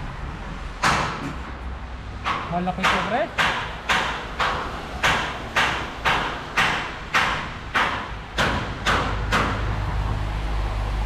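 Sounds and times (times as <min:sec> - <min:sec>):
low steady rumble: 0:00.0 - 0:02.2
sharp ringing knocks: 0:02.2 - 0:09.7.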